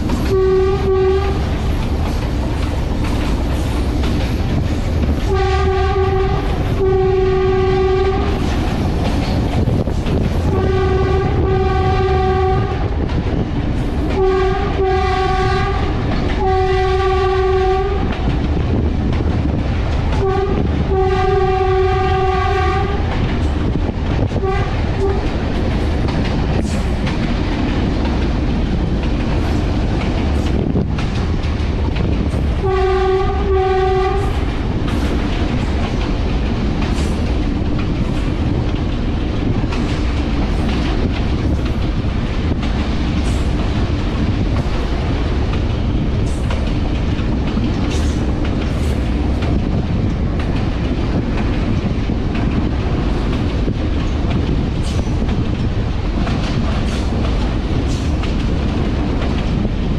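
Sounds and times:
locomotive horn blasts: 0:00.3 - 0:01.4, 0:05.2 - 0:08.4, 0:10.5 - 0:12.9, 0:14.1 - 0:18.1, 0:20.1 - 0:23.2, 0:24.4 - 0:25.3, 0:32.6 - 0:34.4.

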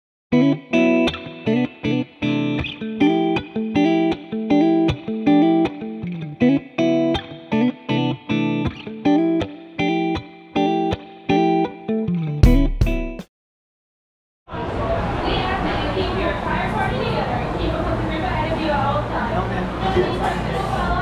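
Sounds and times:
guitar playing choppy chords: 0:00.3 - 0:13.2.

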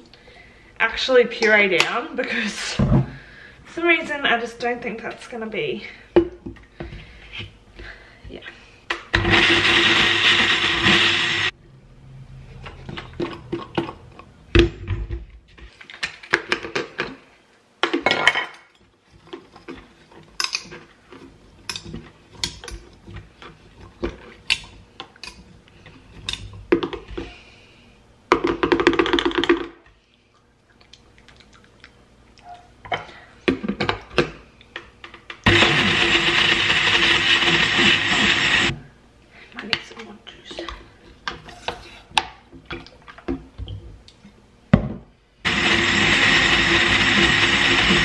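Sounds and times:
blender chopping frozen fruit: 0:09.1 - 0:11.5, 0:35.4 - 0:38.8, 0:45.5 - 0:48.0.

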